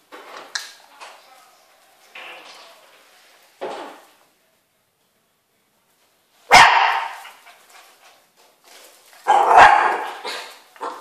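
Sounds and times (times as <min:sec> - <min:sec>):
dog barking: 0:06.5 - 0:07.4, 0:09.2 - 0:11.0.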